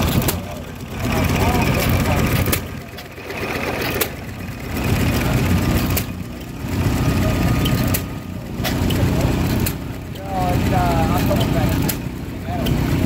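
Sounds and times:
gas engine cracks: 0.0s - 6.6s, 7.6s - 9.9s
engine low chugging: 0.0s - 13.0s.

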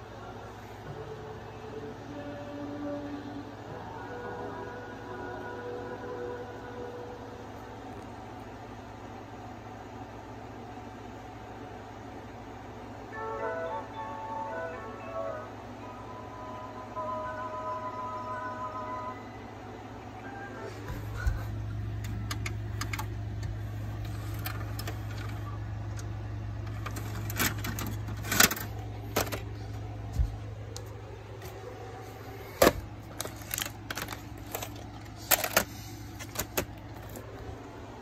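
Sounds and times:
low steady hum: 0.0s - 38.0s
plastic cassette case clicks and clatters: 22.0s - 23.1s, 26.7s - 29.5s, 32.6s - 37.2s.

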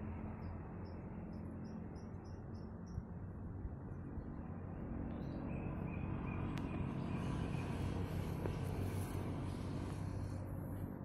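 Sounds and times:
steady low rumble: 6.5s - 11.0s.

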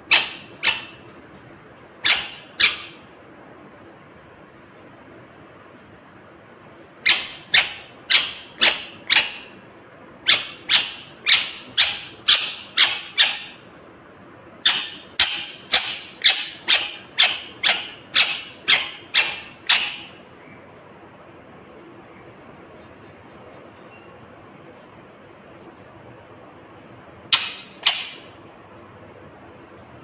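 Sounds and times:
parakeet screeching: 0.0s - 1.2s, 2.0s - 3.1s, 7.0s - 9.6s, 10.2s - 13.6s, 14.6s - 20.2s, 27.3s - 28.4s.

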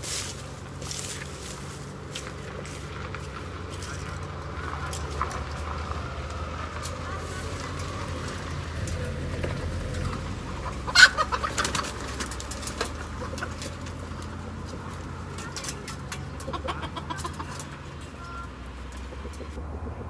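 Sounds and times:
chickens clucking: 0.0s - 20.0s
chicken squawk: 10.6s - 12.0s, 16.4s - 17.6s.

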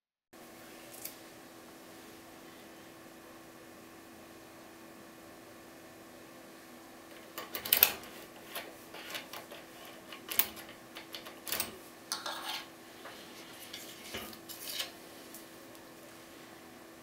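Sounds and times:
lock picks clicking in lock: 7.1s - 11.8s
lock picks scraping: 7.1s - 15.0s.

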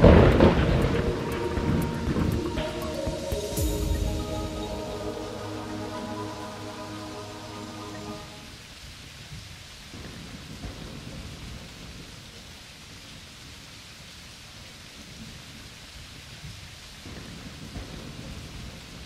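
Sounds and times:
low rumble of thunder: 0.0s - 2.8s
steady rain hissing: 0.0s - 19.0s.

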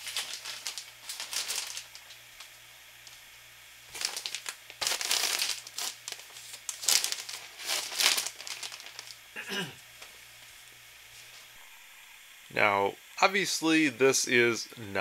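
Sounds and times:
insulation batts rustling: 0.0s - 9.3s.

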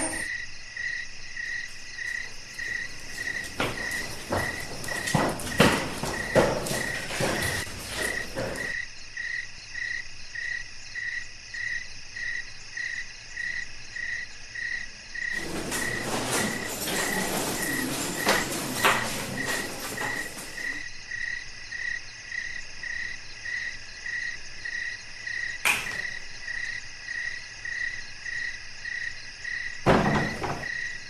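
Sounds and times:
cricket chirping: 0.0s - 31.0s
high insect trill: 0.0s - 31.0s
scuffs and knocks: 2.1s - 8.8s, 15.3s - 20.8s.

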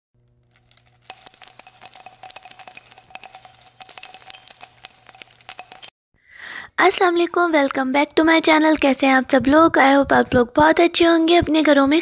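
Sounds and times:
small bells jingling: 0.4s - 6.0s.

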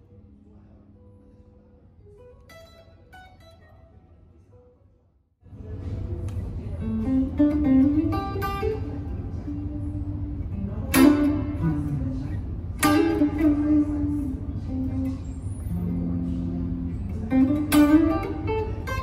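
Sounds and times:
steady low hum: 0.0s - 19.0s
electric guitar notes and chords: 5.8s - 19.0s.

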